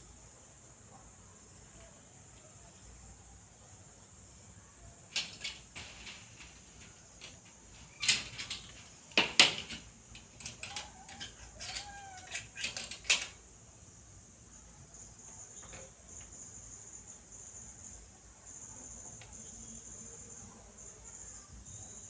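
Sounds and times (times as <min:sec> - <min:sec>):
steady high hiss: 0:00.0 - 0:22.0
sharp clicks and clattering knocks: 0:05.1 - 0:13.4.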